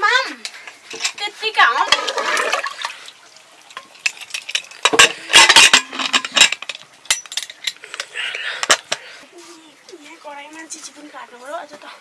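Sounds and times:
metal pots and utensils clattering: 0:00.5 - 0:02.8, 0:03.7 - 0:09.1.

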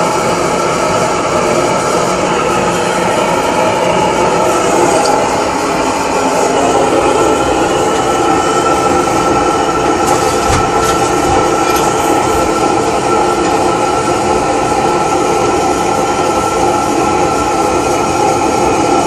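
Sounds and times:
single-cylinder engine running: 0:06.2 - 0:17.2.

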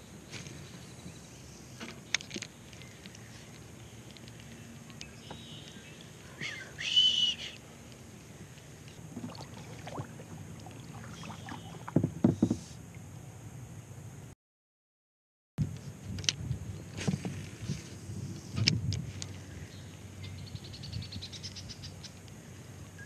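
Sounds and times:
steady low rumble: 0:07.5 - 0:12.2
kayak paddle strokes in water: 0:09.0 - 0:12.9
low thumps: 0:09.1 - 0:12.6.

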